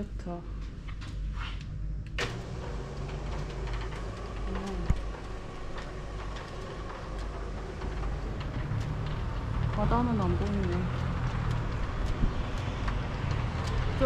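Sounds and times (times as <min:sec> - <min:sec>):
roller shutter motor running: 0:00.6 - 0:14.0
shutter slats ticking: 0:02.1 - 0:14.0.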